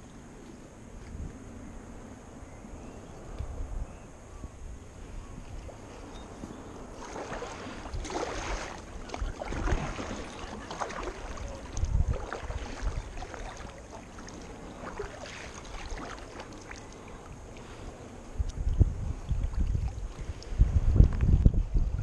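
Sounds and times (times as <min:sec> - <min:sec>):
kayak paddle splashing: 0:05.4 - 0:20.8.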